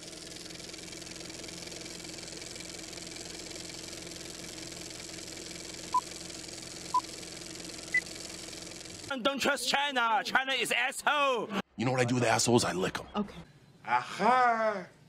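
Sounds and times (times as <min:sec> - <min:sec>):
film projector whirring: 0:00.0 - 0:09.2.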